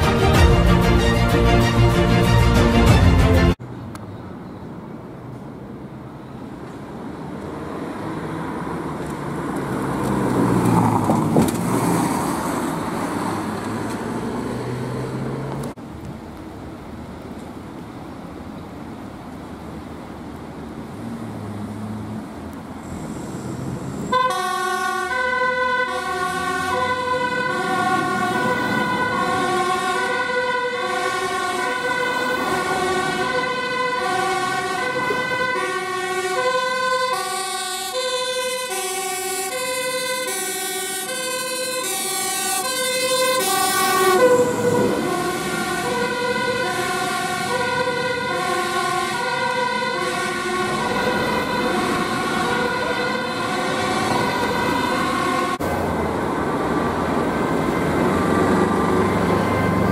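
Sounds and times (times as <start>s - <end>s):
diesel engine pulling away: 5.7s - 15.8s, 20.3s - 59.9s
two-tone siren: 23.4s - 59.9s.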